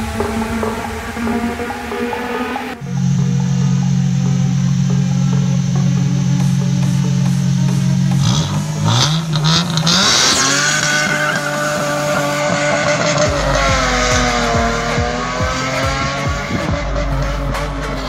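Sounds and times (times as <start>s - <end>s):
car engine revving: 0.0s - 18.0s
tyres squealing: 8.9s - 14.3s.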